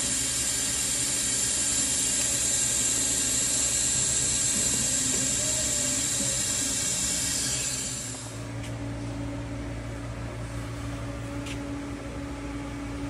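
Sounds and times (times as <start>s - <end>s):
welding arc hissing: 0.0s - 8.4s
steady low hum: 0.0s - 13.0s.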